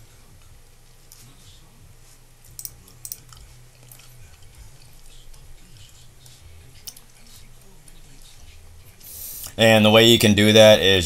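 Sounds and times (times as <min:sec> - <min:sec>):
low steady hum: 0:00.0 - 0:11.0
computer mouse clicks: 0:02.5 - 0:04.1.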